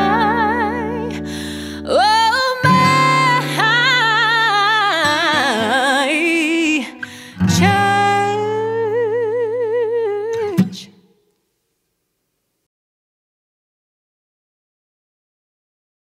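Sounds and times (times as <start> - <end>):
strummed acoustic guitar: 0.0 - 9.1, 10.3 - 10.9
woman singing with vibrato: 0.0 - 11.0.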